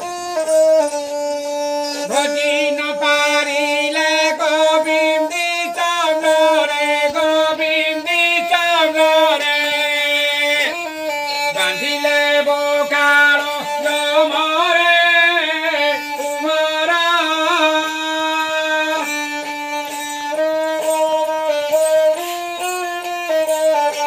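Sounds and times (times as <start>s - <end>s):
man singing folk song: 0.0s - 24.0s
one-stringed instrument melody: 0.0s - 24.0s.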